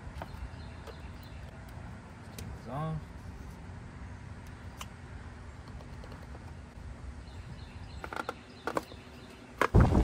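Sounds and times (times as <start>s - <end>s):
wind rumble on microphone: 9.7s - 10.0s.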